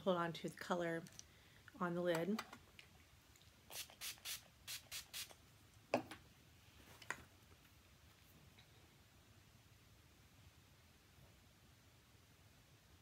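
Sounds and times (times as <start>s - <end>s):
spray bottle hissing: 3.7s - 5.4s.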